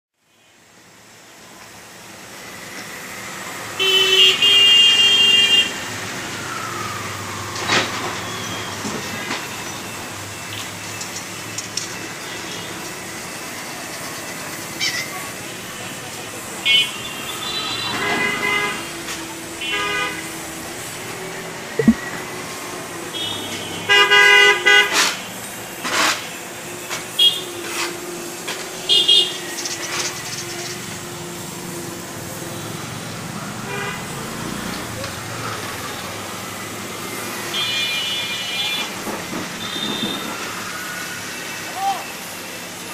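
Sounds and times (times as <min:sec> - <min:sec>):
street traffic hum: 0:00.2 - 0:42.9
vehicle horn: 0:03.8 - 0:05.8, 0:16.7 - 0:19.0, 0:19.6 - 0:20.4, 0:23.1 - 0:25.2, 0:37.5 - 0:38.9, 0:39.6 - 0:40.3
street din: 0:17.9 - 0:22.8, 0:34.1 - 0:41.0
sharp knock: 0:21.8 - 0:22.0.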